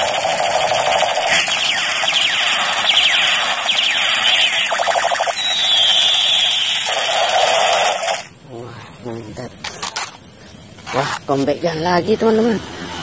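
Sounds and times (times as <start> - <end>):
toy gun electronic laser zaps: 0.0 - 8.3.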